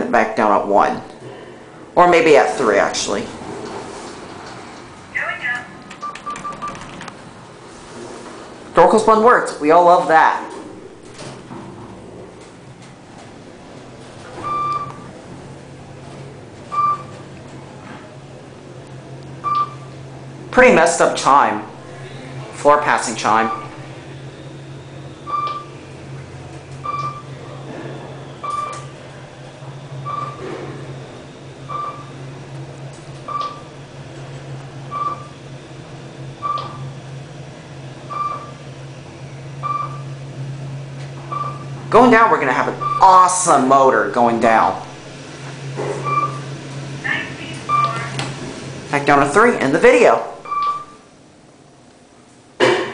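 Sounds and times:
steady low hum: 0.0 - 52.9
elevator floor chime beeps: 14.4 - 15.0, 16.7 - 17.2, 19.4 - 19.9, 25.2 - 25.8, 26.8 - 27.3, 28.4 - 28.8, 30.0 - 30.4, 31.7 - 32.2, 33.3 - 33.7, 34.9 - 35.4, 36.4 - 36.8, 38.1 - 38.6, 39.6 - 40.1, 41.3 - 41.7, 42.8 - 43.2, 46.0 - 46.5, 47.7 - 48.1, 50.4 - 51.0.

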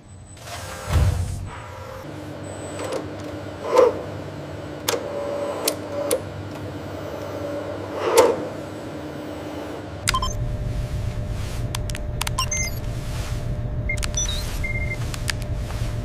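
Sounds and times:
actuator hum and servo whine: 0.0 - 16.0
sharp mechanical clicks: 10.0 - 10.4, 11.8 - 12.8, 13.9 - 15.5.

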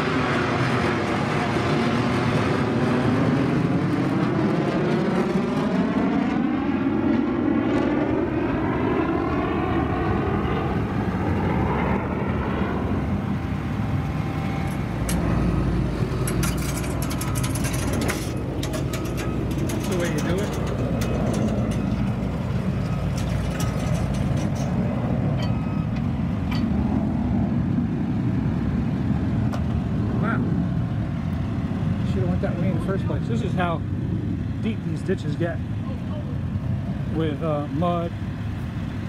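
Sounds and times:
diesel engine under load: 9.2 - 39.0
sharp metal clanks: 16.1 - 26.8.

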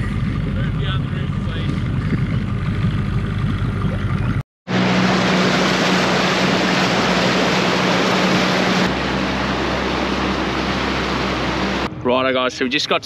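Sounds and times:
outboard motor running: 0.0 - 11.9
rush of wind and water: 1.7 - 11.9.

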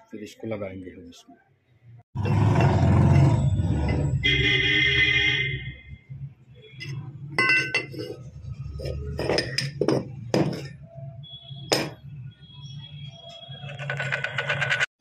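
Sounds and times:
steel tools clinking: 6.8 - 8.2.

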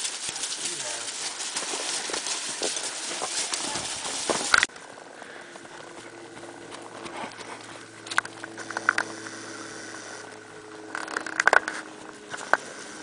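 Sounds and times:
horse hooves on ground: 0.0 - 13.0
steady low hum: 0.0 - 13.0.

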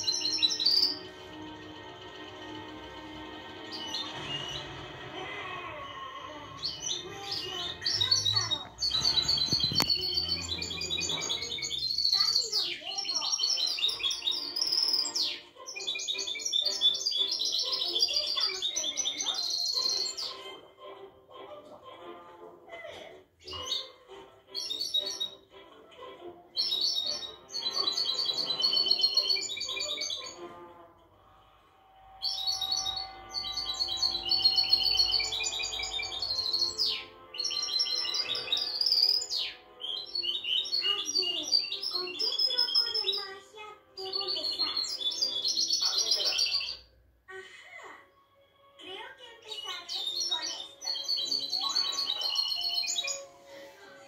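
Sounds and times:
songbird singing rapid chirps: 0.0 - 1.3, 6.6 - 20.4, 23.4 - 25.6, 26.5 - 30.5, 32.2 - 43.4, 44.0 - 46.9, 49.5 - 53.8.

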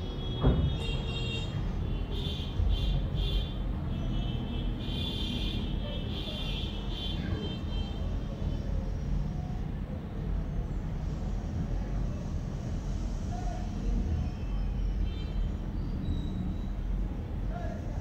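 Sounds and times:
low rumbling background noise: 0.0 - 18.0.

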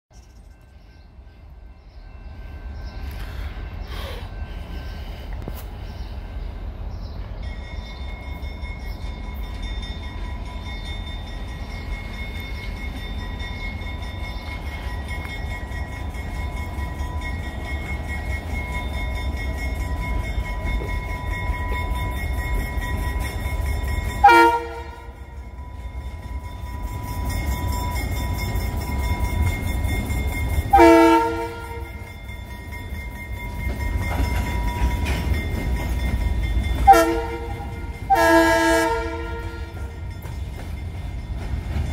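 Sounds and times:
diesel locomotive rumbling: 0.3 - 41.9
locomotive air horn: 24.2 - 25.2, 30.7 - 32.1, 36.8 - 40.0.

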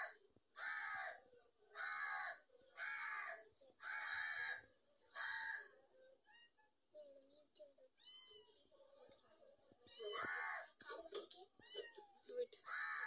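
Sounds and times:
crow cawing: 0.0 - 5.8, 10.1 - 10.8, 12.6 - 13.0.

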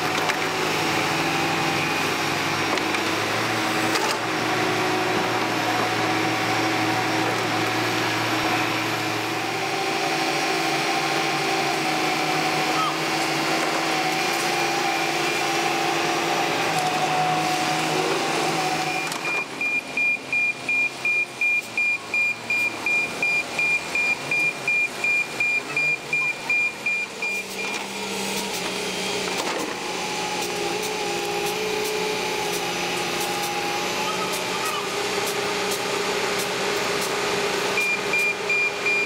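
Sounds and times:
excavator diesel engine and hydraulics: 0.0 - 39.0
reversing alarm beeping: 18.8 - 27.8, 37.7 - 39.0.

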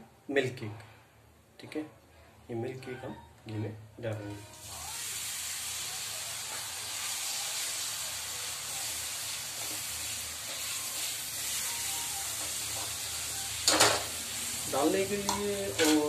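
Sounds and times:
milk cake sizzling in ghee: 4.5 - 16.0.

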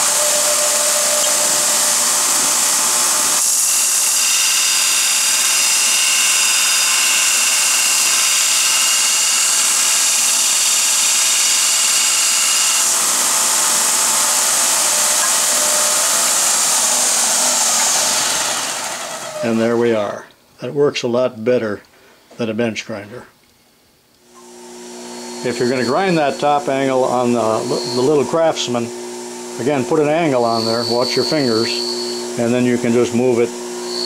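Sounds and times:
metal grinding on belt: 0.0 - 19.6
belt sander running: 0.0 - 19.8, 24.3 - 34.0.

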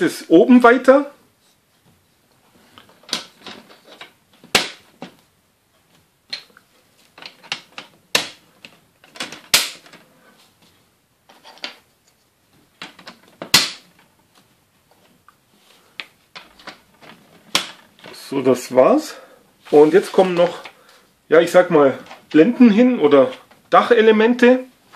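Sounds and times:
plastic parts clicking and snapping: 2.8 - 5.2, 6.3 - 10.0.

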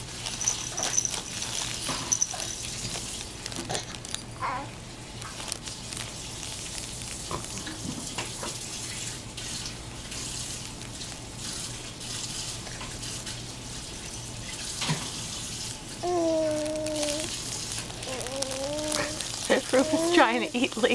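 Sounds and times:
faint baby vocal sounds: 3.6 - 4.8, 16.0 - 20.6
water running from tap: 5.8 - 18.0.

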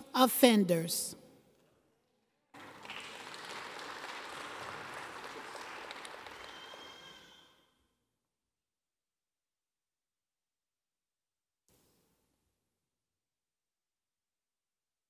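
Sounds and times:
audience clapping: 2.6 - 7.5.

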